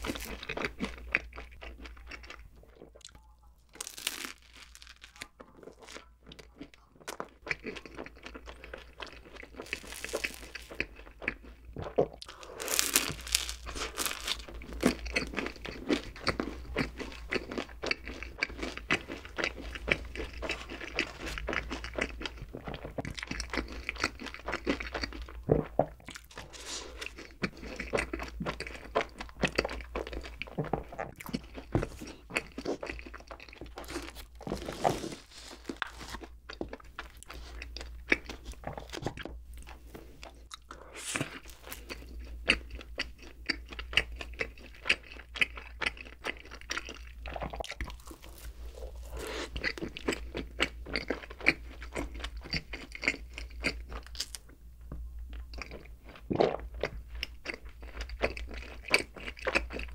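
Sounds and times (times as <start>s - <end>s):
person crunching and chewing food: 0.0s - 59.9s
soft bun being torn: 3.8s - 5.3s, 9.6s - 10.8s, 12.6s - 15.2s, 47.8s - 49.8s.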